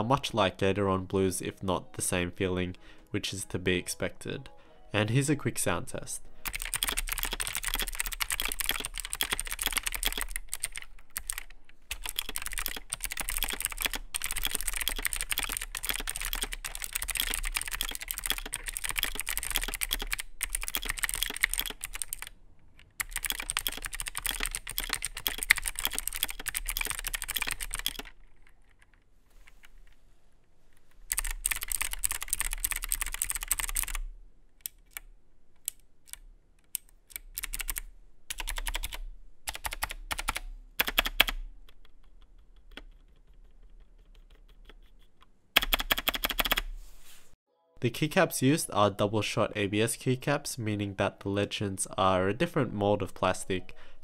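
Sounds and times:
clicky keyboard typing: 6.4s - 29.0s, 31.1s - 46.7s.

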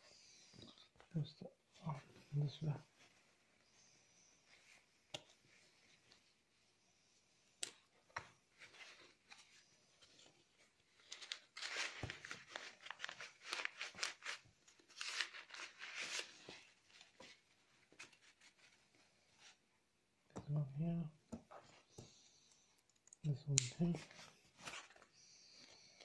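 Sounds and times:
fabric rustling and crinkling: 7.9s - 19.7s.

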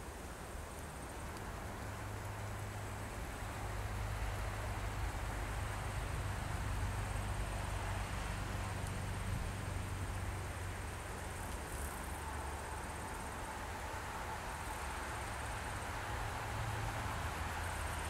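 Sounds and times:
insect trill: 9.7s - 18.0s.

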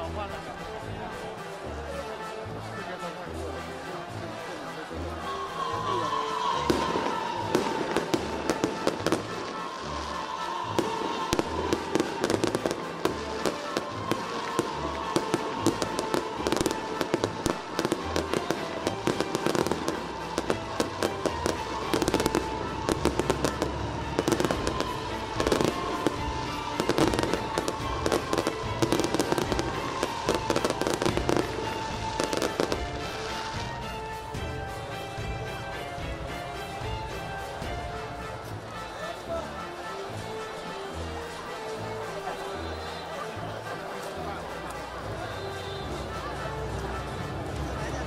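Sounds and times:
music playing: 0.0s - 48.0s
fireworks cracking and banging: 6.4s - 38.9s.

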